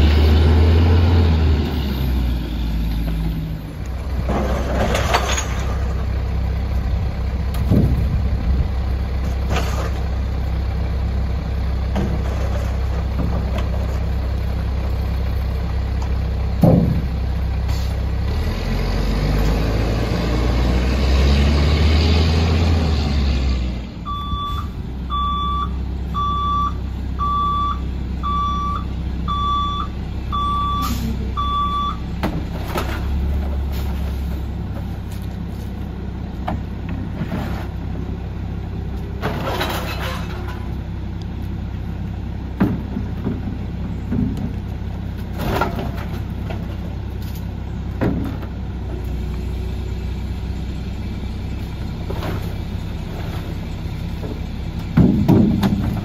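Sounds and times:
diesel engine running and revving: 0:00.0 - 0:56.0
truck reversing alarm beeps: 0:24.0 - 0:32.1
sharp bangs of recycling: 0:54.9 - 0:56.0.

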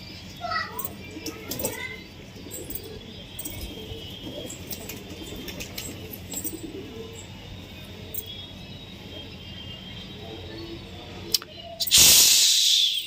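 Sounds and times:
pigeons cooing: 0:00.6 - 0:08.1.

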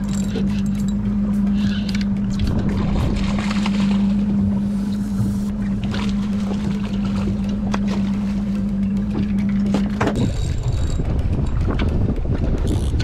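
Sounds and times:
boat motor running: 0:00.0 - 0:13.0
steady hum: 0:00.0 - 0:13.0
wind on microphone: 0:01.5 - 0:08.0, 0:09.9 - 0:13.0.

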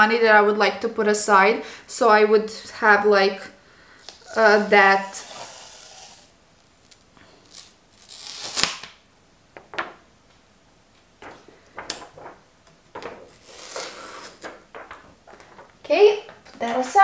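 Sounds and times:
makeup brush rubbing on palette: 0:04.3 - 0:06.3.

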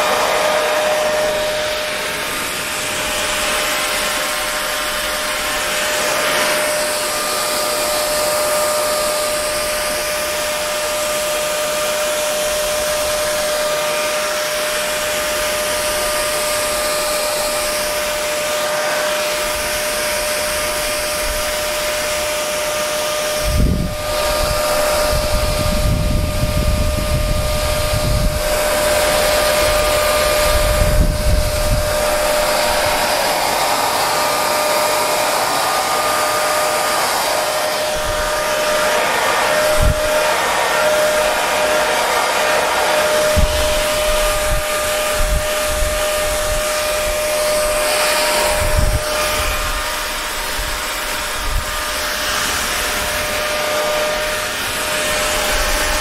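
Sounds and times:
hair dryer running: 0:00.0 - 0:56.0
low rumbling air gusts: 0:23.3 - 0:34.7, 0:37.1 - 0:41.8, 0:42.8 - 0:56.0.

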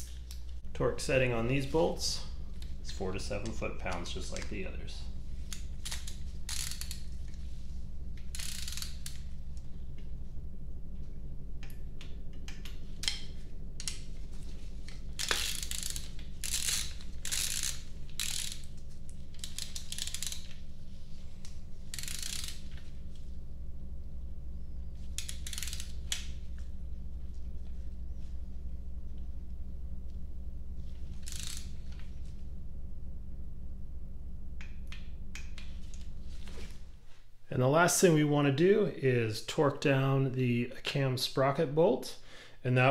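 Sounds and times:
steady low hum: 0:00.0 - 0:42.9
ratchet wrench clicking: 0:03.4 - 0:07.4, 0:08.2 - 0:09.4, 0:15.2 - 0:20.6, 0:21.4 - 0:22.9, 0:25.2 - 0:26.4, 0:31.2 - 0:32.0.

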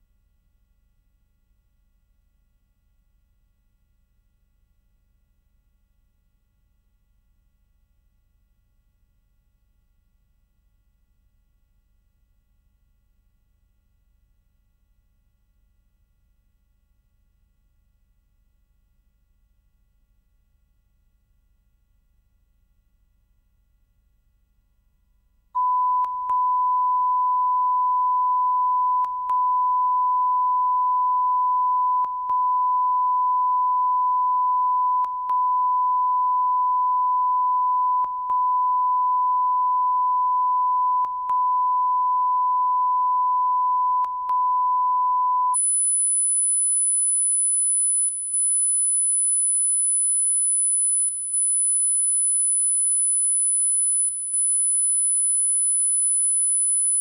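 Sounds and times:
high-pitched test tone: 0:45.2 - 0:57.0.

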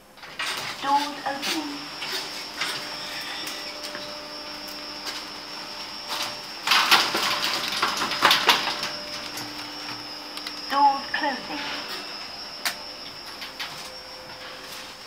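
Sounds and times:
lift doors sliding with rattle: 0:00.0 - 0:04.2
lift car humming: 0:00.0 - 0:15.0.

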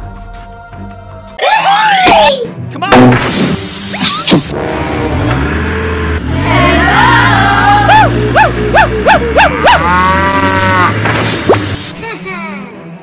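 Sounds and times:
low engine hum: 0:04.5 - 0:10.4
cow mooing: 0:09.3 - 0:11.0.

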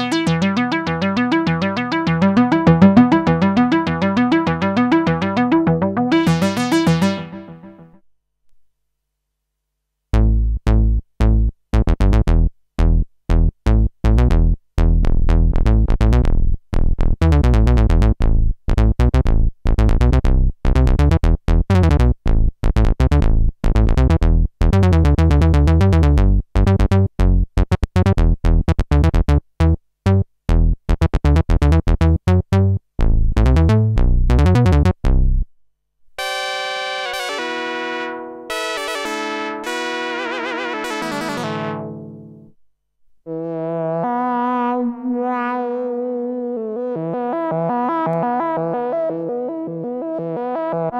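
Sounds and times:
bright held synthesizer note: 0:00.0 - 0:08.0
synthesizer bass notes: 0:00.0 - 0:08.0, 0:10.2 - 0:35.5, 0:36.2 - 0:42.5.

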